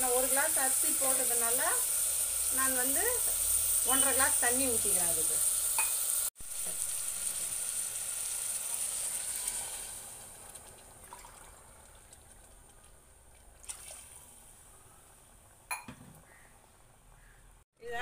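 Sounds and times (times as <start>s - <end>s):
water pouring into pot: 0.0s - 12.7s.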